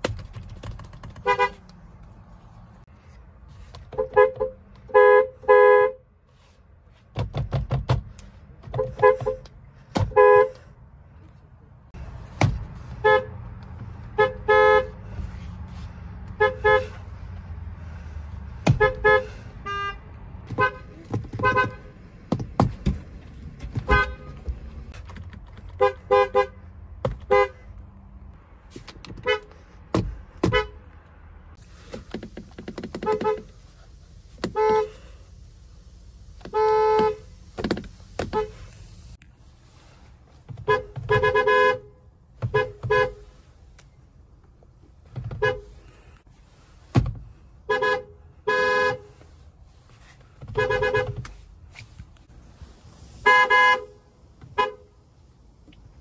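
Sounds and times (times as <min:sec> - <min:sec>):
car horn honks: 0:01.2 - 0:01.6, 0:03.9 - 0:06.0, 0:08.7 - 0:10.7, 0:13.0 - 0:13.4, 0:14.1 - 0:15.1, 0:16.3 - 0:17.1, 0:18.6 - 0:22.0, 0:23.8 - 0:24.6, 0:25.8 - 0:26.6, 0:27.2 - 0:27.7, 0:30.4 - 0:30.8, 0:33.0 - 0:33.6, 0:34.4 - 0:35.1, 0:36.5 - 0:37.3, 0:40.6 - 0:43.4, 0:45.3 - 0:45.7, 0:47.6 - 0:49.2, 0:50.5 - 0:51.2, 0:53.2 - 0:55.0.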